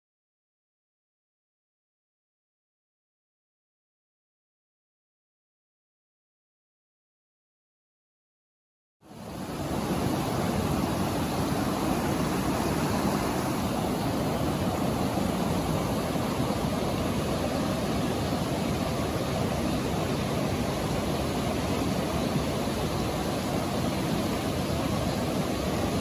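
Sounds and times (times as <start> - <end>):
stream rushing over boulders: 9.1 - 26.0.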